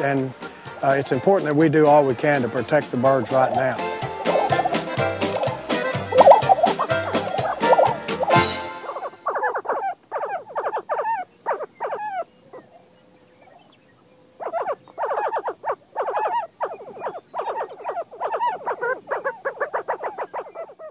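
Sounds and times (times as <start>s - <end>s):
prairie chickens calling: 0.0s - 20.9s.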